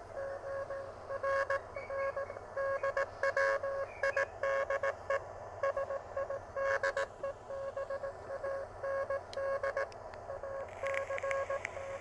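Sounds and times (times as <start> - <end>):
morse code tone: 0.2 - 12.0
faint receiver hiss: 9.3 - 12.0.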